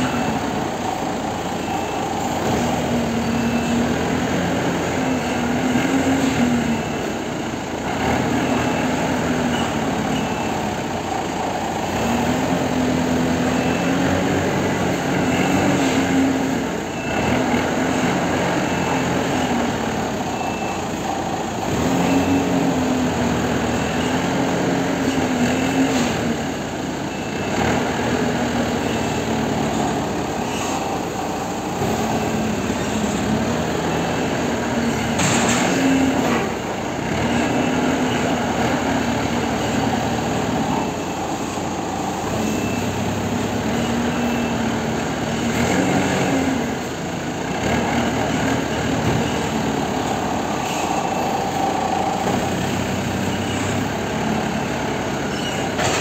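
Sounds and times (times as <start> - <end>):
forklift engine revving: 0.0 - 56.0
short high beeps: 42.3 - 43.2.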